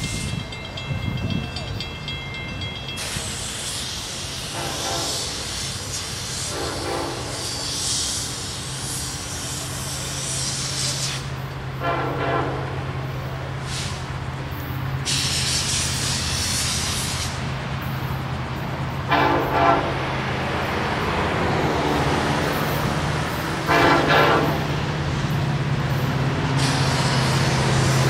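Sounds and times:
hiss: 3.0s - 11.8s, 13.1s - 18.8s, 21.6s - 28.0s
distant locomotive air horn: 4.5s - 5.6s, 6.4s - 7.9s, 11.8s - 12.9s, 19.1s - 20.1s, 23.6s - 24.8s.

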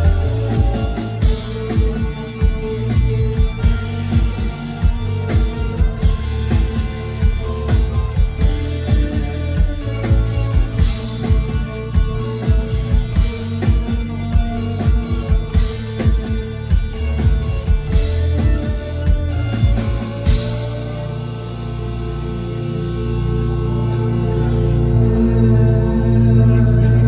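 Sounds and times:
drum kit beat: 0.0s - 21.2s
deep bass notes: 0.0s - 27.0s
electric keyboards: 0.0s - 27.0s.

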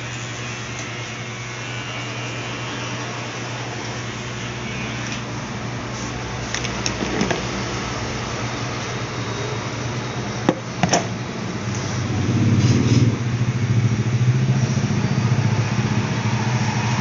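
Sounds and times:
electric hair clipper buzzing: 0.0s - 8.2s.

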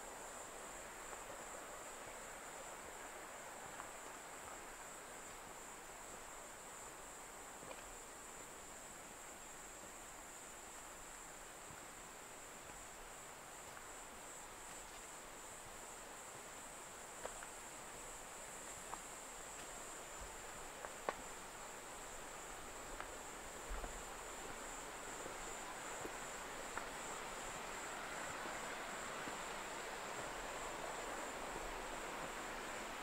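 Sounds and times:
high insect trill: 0.0s - 33.0s
mountain stream rushing: 19.9s - 33.0s.

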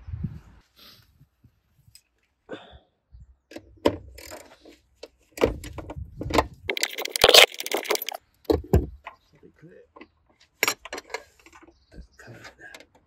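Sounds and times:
metal-on-metal clatter: 6.7s - 8.2s.

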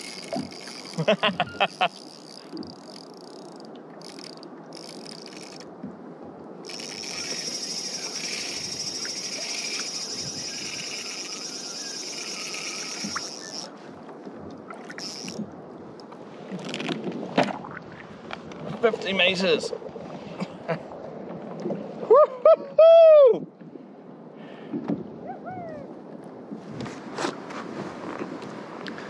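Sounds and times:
water noise: 0.0s - 22.2s
wind noise: 4.0s - 19.1s
high pulsing buzz: 6.7s - 13.7s.

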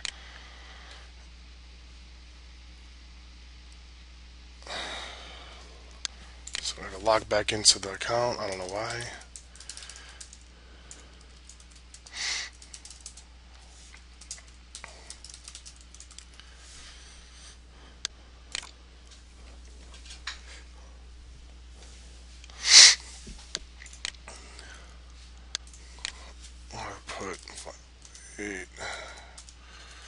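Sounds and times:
typing on keyboard: 11.3s - 13.2s, 14.2s - 16.3s
short hissing sounds: 12.0s - 12.8s, 22.5s - 23.3s.

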